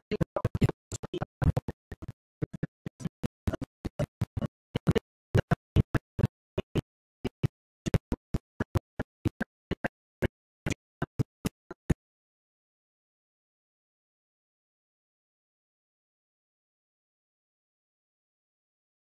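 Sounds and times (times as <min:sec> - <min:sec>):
choppy film soundtrack blips: 0:00.0 - 0:11.9.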